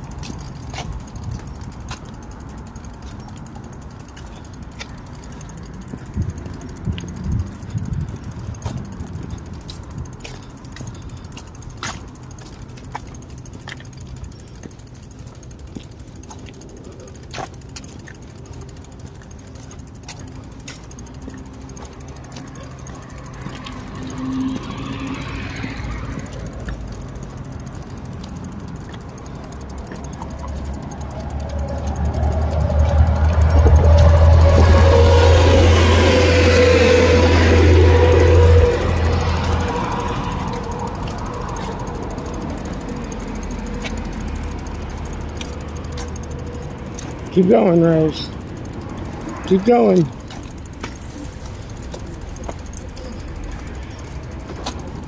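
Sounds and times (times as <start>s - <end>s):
bicycle bumps: 0.0s - 55.0s
bicycle tyres rumbling on concrete: 0.0s - 55.0s
bike clicks and rattles: 0.0s - 55.0s
car passing: 19.5s - 55.0s.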